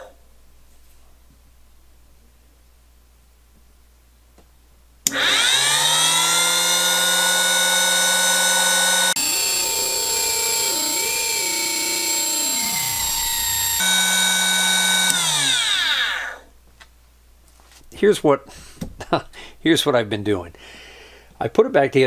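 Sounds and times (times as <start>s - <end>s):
drill press motor whine: 5.1s - 16.5s.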